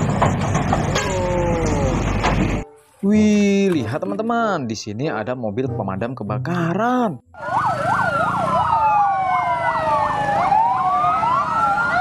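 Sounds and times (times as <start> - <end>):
fire engine siren yelp: 7.4 - 12.0
siren wails: 7.4 - 12.0.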